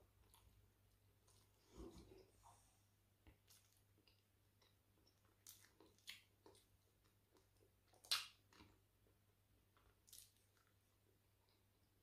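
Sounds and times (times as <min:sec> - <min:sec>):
soft mouth clicks and smacks: 0:03.2 - 0:08.8, 0:09.8 - 0:10.8
person chewing: 0:03.2 - 0:11.7.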